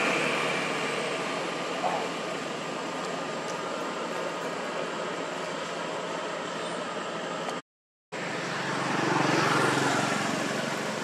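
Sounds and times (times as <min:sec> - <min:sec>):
vehicle engine passing: 0:00.0 - 0:05.2, 0:08.2 - 0:11.0
steady outdoor hiss: 0:00.0 - 0:07.6, 0:08.2 - 0:11.0.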